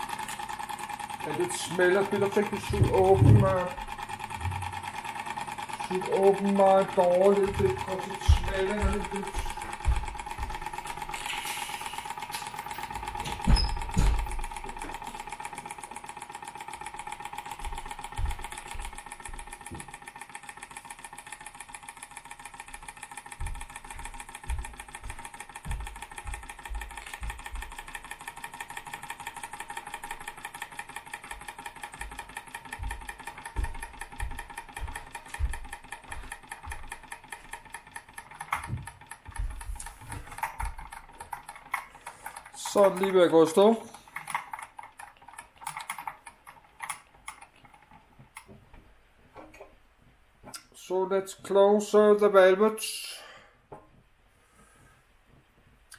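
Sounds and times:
toy steam engine chuffing: 0.0s - 14.0s.

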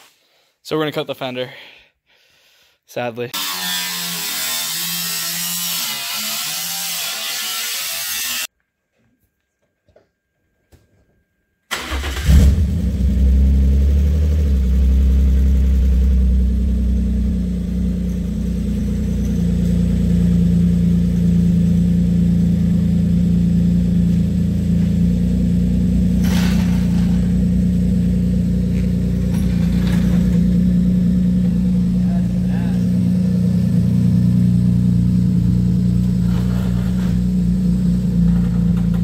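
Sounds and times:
car engine starting and idling: 11.7s - 39.0s.

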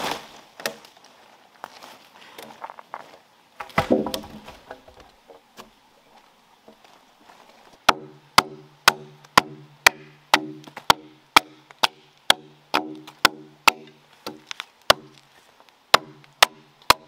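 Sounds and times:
blade chopping into log: 3.6s - 4.5s, 7.9s - 15.2s.

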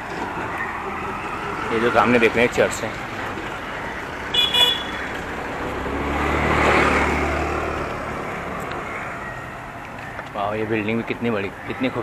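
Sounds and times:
car passing close by: 4.1s - 9.4s.

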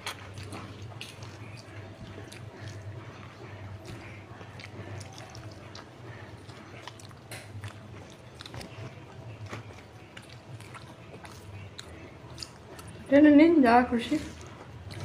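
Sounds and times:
chewing: 0.0s - 15.0s
steady low hum: 0.0s - 15.0s.

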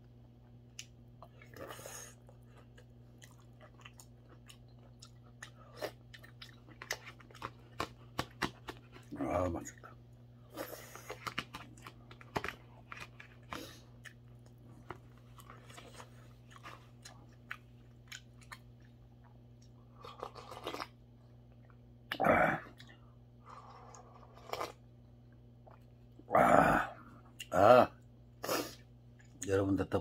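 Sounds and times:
chewing and smacking: 0.0s - 26.2s.

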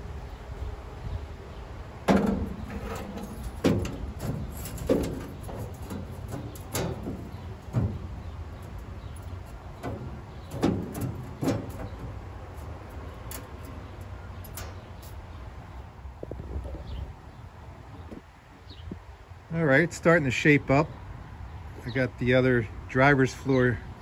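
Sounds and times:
sheet metal knocking and scraping: 2.0s - 15.2s.

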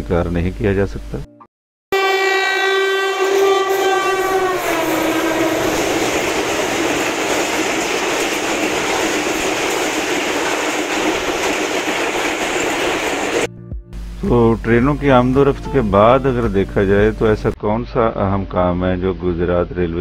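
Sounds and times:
locomotive horn: 1.9s - 9.2s
train coaches rushing past: 2.0s - 13.5s.

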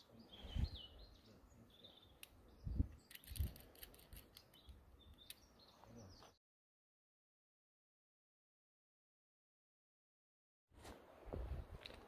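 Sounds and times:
birds chirping: 0.0s - 6.4s
carabiner clicks: 2.2s - 5.5s.

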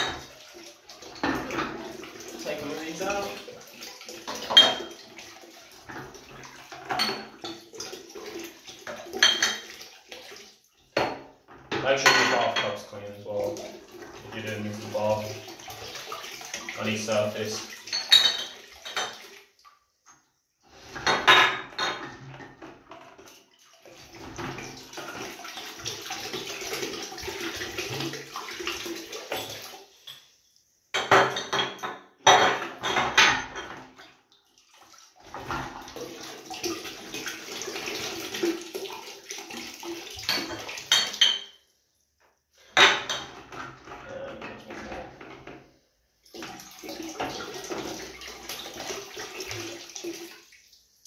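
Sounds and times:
water sloshing in a bucket: 0.0s - 30.2s, 32.3s - 41.7s, 42.5s - 51.0s
glass bottles clinking: 4.3s - 5.0s, 6.8s - 7.6s, 9.2s - 9.7s, 11.8s - 12.9s, 17.9s - 19.2s, 21.0s - 22.6s, 31.0s - 33.8s, 40.2s - 41.6s, 42.7s - 43.4s.

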